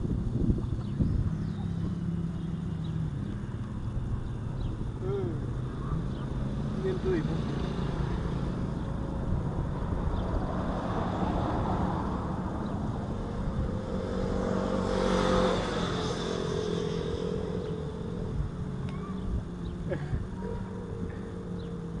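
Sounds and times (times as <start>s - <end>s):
vehicle engine running: 0.0s - 22.0s.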